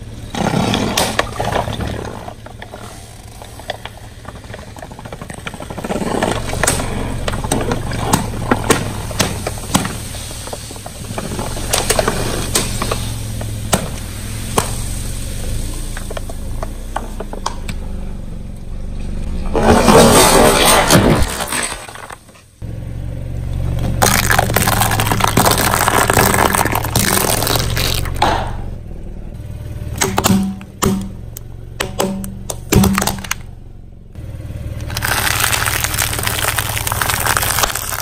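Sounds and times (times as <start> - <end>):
car engine running: 0.0 - 38.0
plastic bottles cracking and popping: 23.9 - 28.4, 31.8 - 33.5, 34.8 - 38.0.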